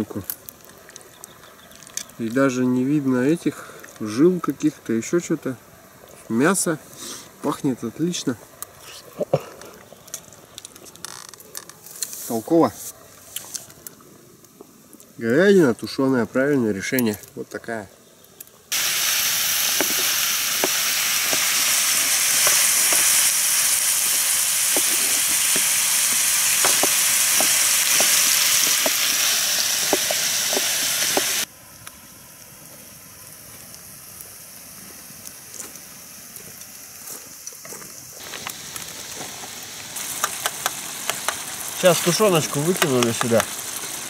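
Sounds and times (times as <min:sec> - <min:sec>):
meat sizzling in a frying pan: 0:18.7 - 0:44.0.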